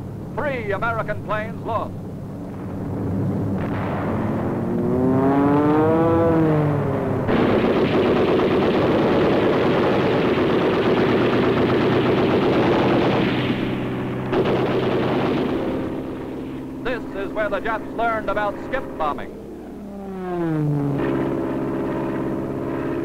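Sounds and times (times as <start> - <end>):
aircraft engine whine: 0.0 - 23.0
steady engine drone: 0.0 - 23.0
rapid machine-gun fire: 7.3 - 18.1, 21.0 - 23.0.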